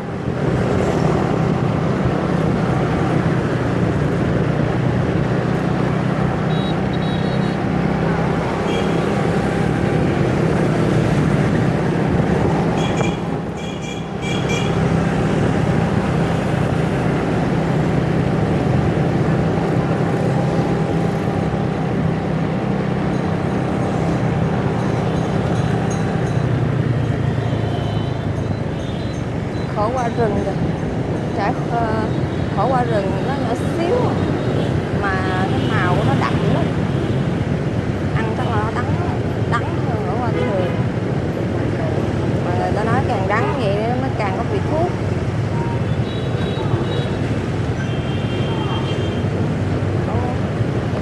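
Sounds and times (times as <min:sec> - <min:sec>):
road and wind noise: 0:00.0 - 0:51.0.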